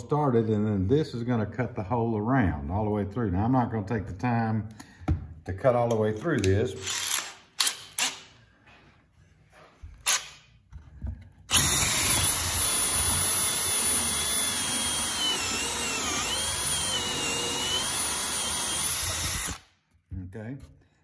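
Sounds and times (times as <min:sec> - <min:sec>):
drill hole saw cutting wood: 0:11.5 - 0:19.7.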